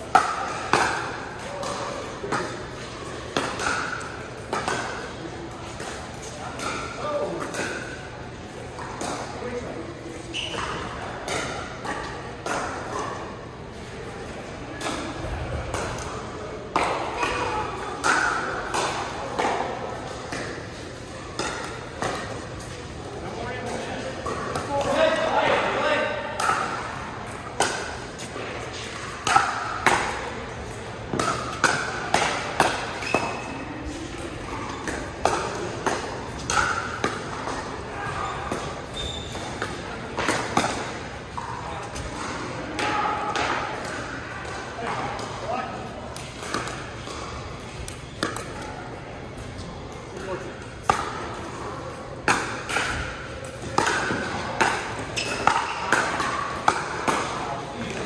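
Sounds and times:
paddles hitting plastic ball: 31.1s - 37.7s, 52.2s - 58.0s.

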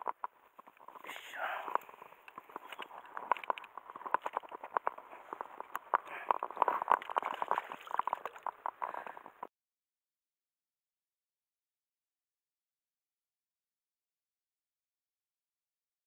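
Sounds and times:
water splashing and sloshing: 1.8s - 9.5s.

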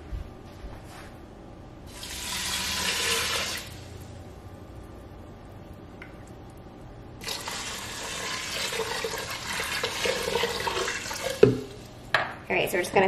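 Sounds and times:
water pouring into steel pot: 1.9s - 3.9s, 7.2s - 11.9s.

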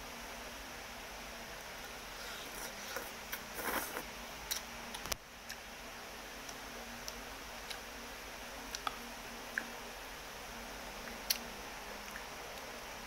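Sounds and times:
noodles slurped: 2.1s - 4.0s.

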